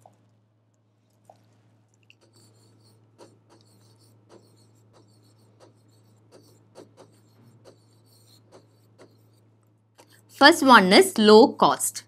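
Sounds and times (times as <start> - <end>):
steady low hum: 0.0 - 11.0
pen scratching on screen: 2.2 - 10.4.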